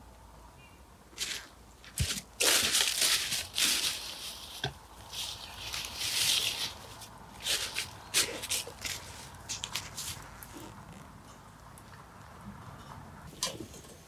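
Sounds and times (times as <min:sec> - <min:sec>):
footsteps crunching dry leaves: 0:01.2 - 0:10.7.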